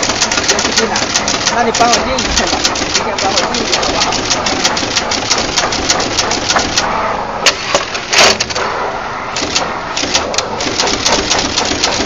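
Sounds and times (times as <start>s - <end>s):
machine clicking rapidly: 0.0s - 6.9s, 9.4s - 12.0s
mechanical clack: 0.0s - 8.8s, 9.4s - 12.0s.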